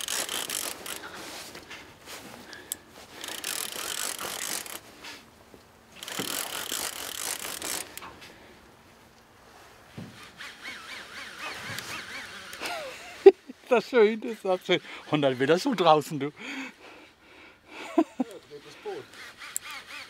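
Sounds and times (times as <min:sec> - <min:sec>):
fishing reel drag ratcheting: 0:00.0 - 0:01.1, 0:02.6 - 0:04.8, 0:06.0 - 0:08.1, 0:10.2 - 0:12.8, 0:14.2 - 0:16.1, 0:18.5 - 0:20.0.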